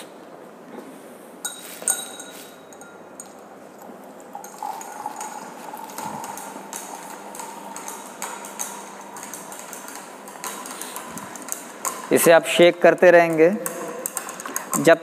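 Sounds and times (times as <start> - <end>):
glass rod clinking in beaker: 1.4 - 12.1.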